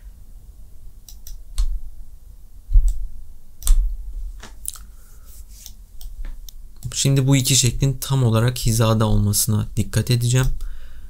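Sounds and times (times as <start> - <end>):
computer mouse clicks: 1.0 - 1.7.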